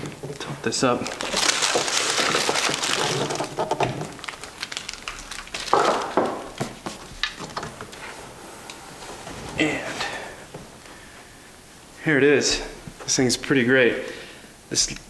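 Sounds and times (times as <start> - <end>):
packaging rustling: 0.0 - 11.5.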